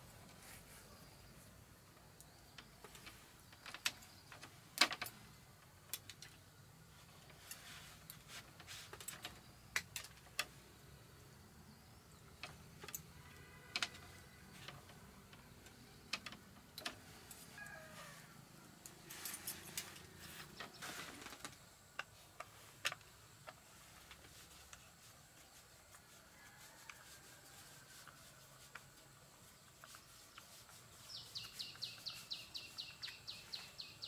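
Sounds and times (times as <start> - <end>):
hand tools clicking and tapping: 12.4 - 17.8.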